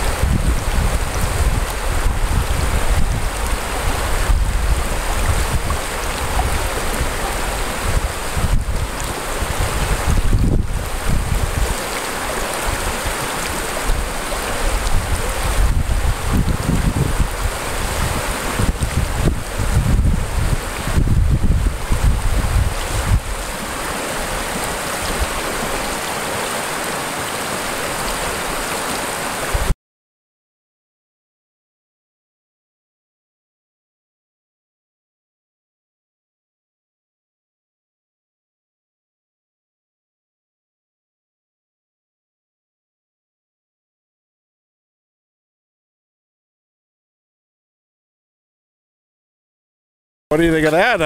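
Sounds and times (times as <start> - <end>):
river rapids rushing over rocks: 0.0 - 19.7, 21.7 - 29.7, 50.4 - 51.0
wind buffeting microphone: 0.0 - 26.0.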